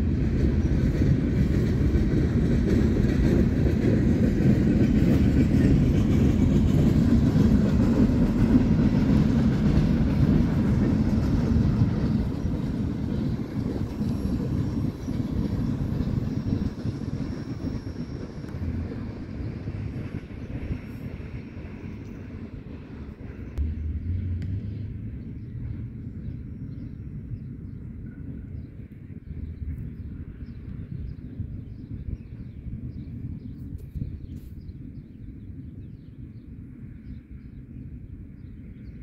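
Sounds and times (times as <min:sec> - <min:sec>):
freight train wheels rumbling: 0:00.0 - 0:36.0.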